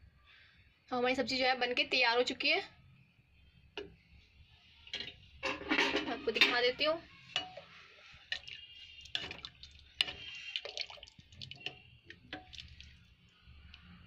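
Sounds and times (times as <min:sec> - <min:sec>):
ladle clinking against metal pot: 0:05.0 - 0:07.7, 0:08.3 - 0:10.8
liquid sloshing: 0:08.2 - 0:13.2.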